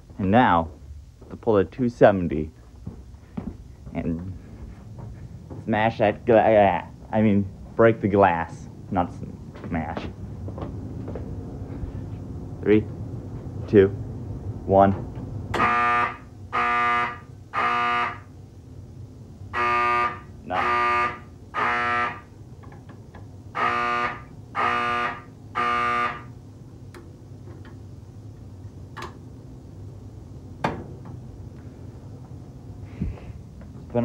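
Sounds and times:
fire alarm horns blaring: 0:15.5 - 0:18.4, 0:19.4 - 0:22.5, 0:23.4 - 0:26.5.

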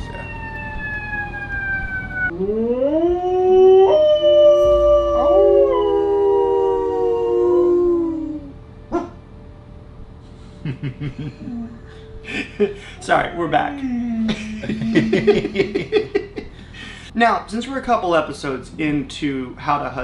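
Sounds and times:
long howling: 0:00.0 - 0:09.1.

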